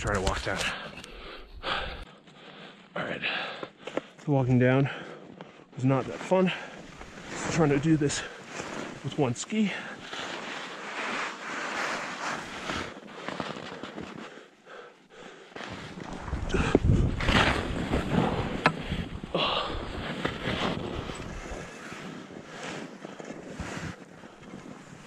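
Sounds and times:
ski scraping over snow: 0:05.8 - 0:14.4, 0:19.8 - 0:25.0
wind buffeting microphone: 0:16.1 - 0:20.1.

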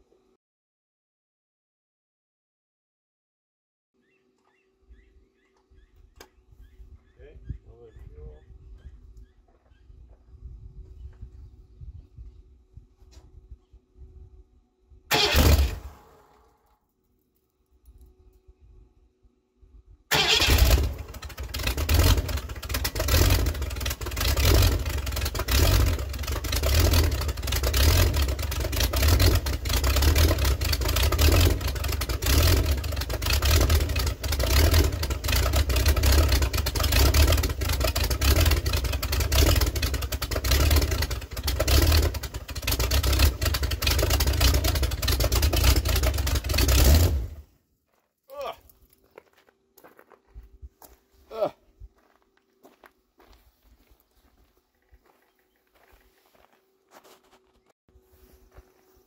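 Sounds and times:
loud rough tractor engine revving: 0:15.1 - 0:16.0, 0:20.1 - 0:47.4.

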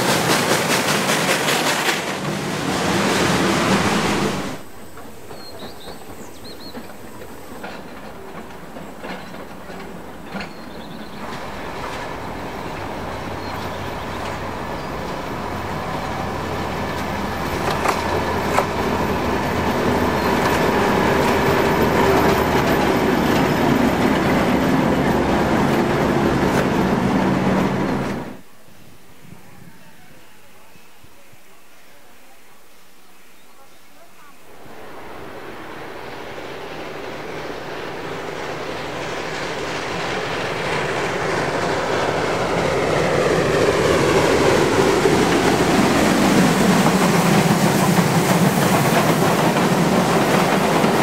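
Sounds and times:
train wheels clattering over rail joints: 0:00.0 - 0:04.0, 0:04.6 - 0:28.3, 0:38.0 - 0:51.0
diesel locomotive engine drone: 0:00.0 - 0:33.1, 0:34.3 - 0:51.0.

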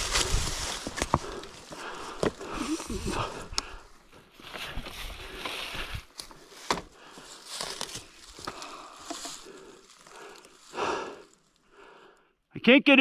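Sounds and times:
dry leaves crunching underfoot: 0:00.0 - 0:01.8, 0:07.3 - 0:11.6
dirt bike tyres on rocks: 0:00.0 - 0:11.6.

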